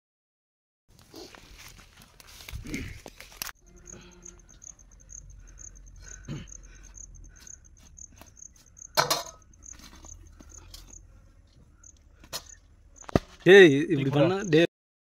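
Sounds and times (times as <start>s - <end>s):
insect chirping: 3.6s - 14.7s.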